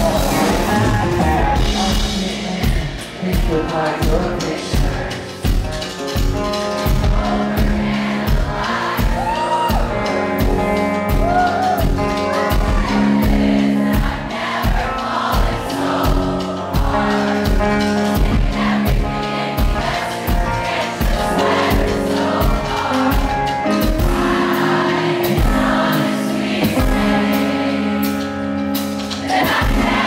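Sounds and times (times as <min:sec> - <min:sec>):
person singing: 0:00.0 - 0:13.4
drums keeping a beat: 0:00.0 - 0:30.0
live rock band playing: 0:00.0 - 0:30.0.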